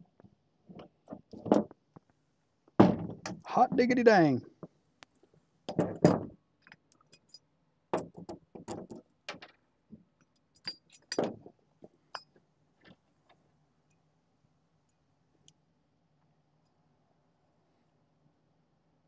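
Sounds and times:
metal tools clinking: 10.6 - 11.4.

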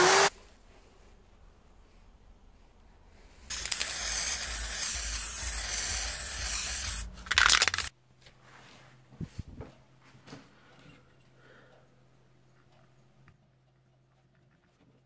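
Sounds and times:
spray paint can hissing: 3.5 - 7.9.

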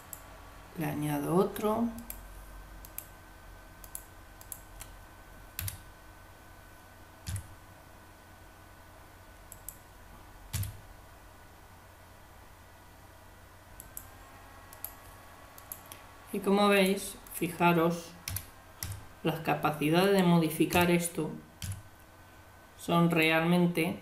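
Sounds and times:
faint steady hum: 0.0 - 24.0
keyboard and mouse clicks: 2.8 - 3.1, 3.8 - 5.0, 5.6 - 5.9, 7.2 - 7.5, 9.5 - 9.8, 10.5 - 10.8, 14.7 - 16.0, 18.2 - 19.0, 20.7 - 21.0, 21.6 - 21.9.

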